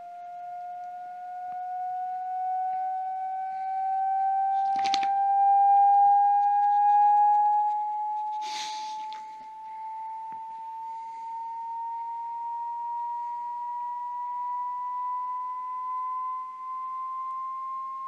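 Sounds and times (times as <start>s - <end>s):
electronic tone gliding upward: 0.0s - 18.0s
short rustling burst: 6.6s - 9.4s.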